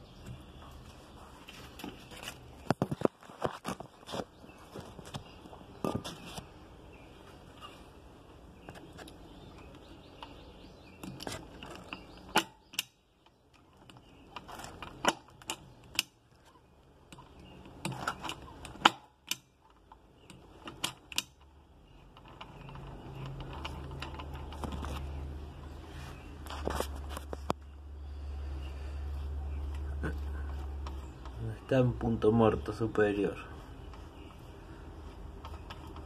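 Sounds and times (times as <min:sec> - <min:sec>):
metallic clicks and knocks of spanner: 0:17.1 - 0:24.8.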